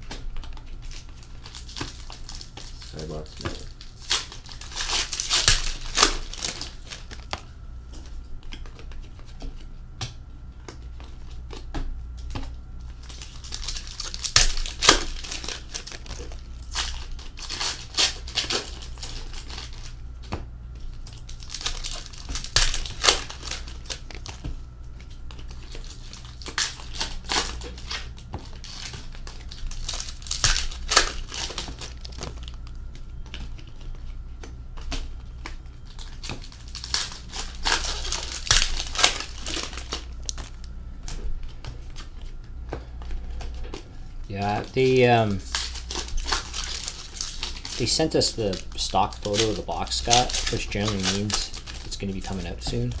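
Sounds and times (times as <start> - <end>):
trading cards flicking and sliding: 44.4 - 53.0.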